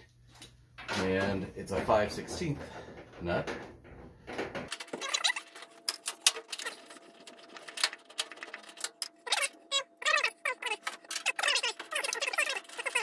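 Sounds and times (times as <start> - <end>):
short squeaks: 4.8 - 5.6, 9.1 - 13.0.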